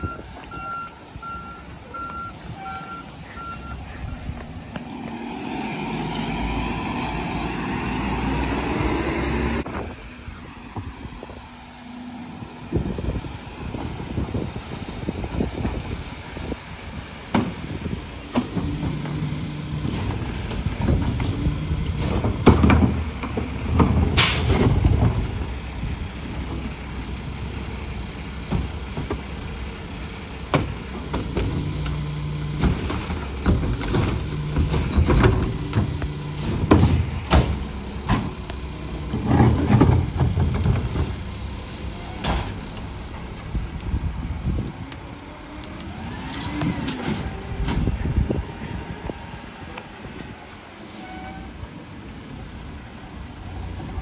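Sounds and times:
garbage truck diesel engine: 0:00.0 - 0:54.0
trash carts banging on hopper: 0:17.3 - 0:25.6, 0:30.4 - 0:43.3, 0:45.8 - 0:48.9.

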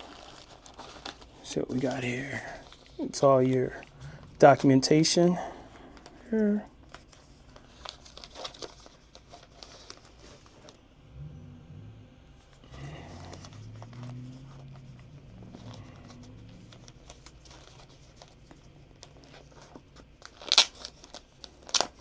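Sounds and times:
plastic packaging crinkling: 0:00.0 - 0:10.8, 0:12.8 - 0:22.0
sharp plastic crackles: 0:12.8 - 0:22.0.

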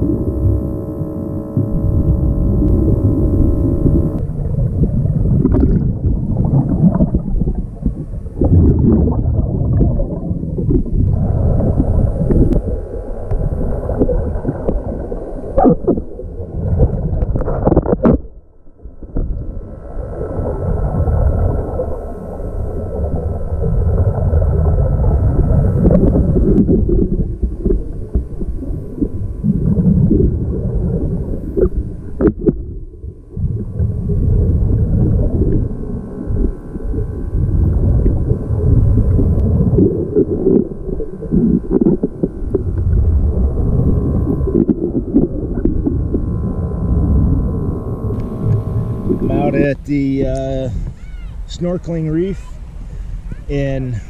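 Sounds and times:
gurgling exhaled bubbles: 0:00.0 - 0:50.9
diver breathing through regulator: 0:52.6 - 0:53.5.

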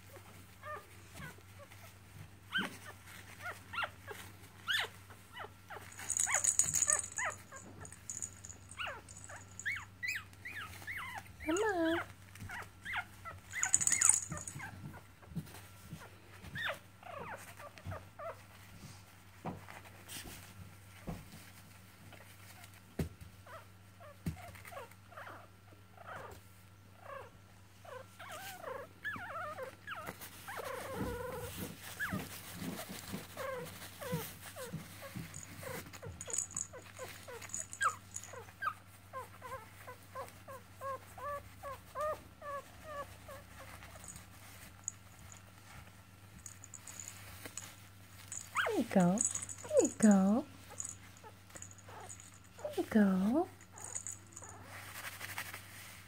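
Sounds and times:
puppies whimpering and squeaking: 0:02.5 - 0:14.8, 0:16.6 - 0:18.4, 0:27.0 - 0:45.8, 0:46.4 - 0:52.8, 0:53.6 - 0:55.2.

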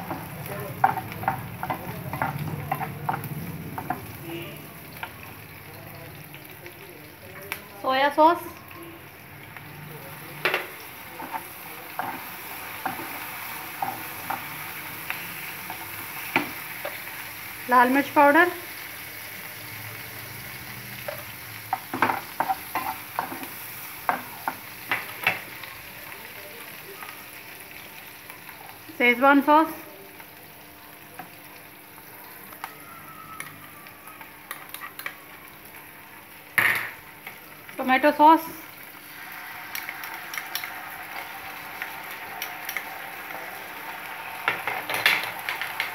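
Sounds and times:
spatula tapping and clicking: 0:00.0 - 0:04.1
vegetables sizzling in oil: 0:00.0 - 0:45.9.

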